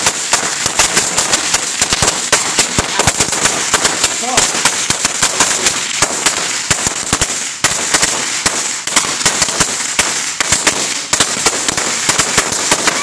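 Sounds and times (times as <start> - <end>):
firecracker crackle: 0.0 - 13.0
firecrackers banging: 0.0 - 13.0.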